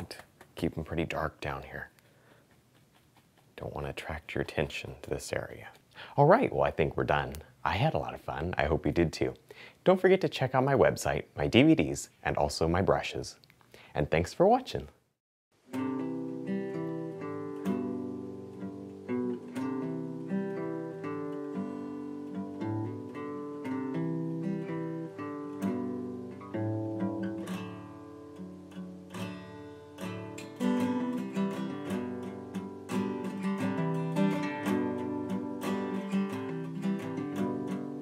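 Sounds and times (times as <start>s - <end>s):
acoustic guitar plucked notes: 15.6s - 38.0s.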